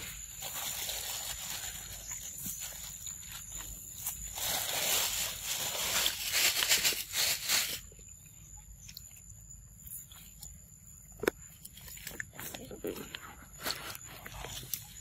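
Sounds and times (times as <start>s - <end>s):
monkey chewing fruit: 8.4s - 15.0s.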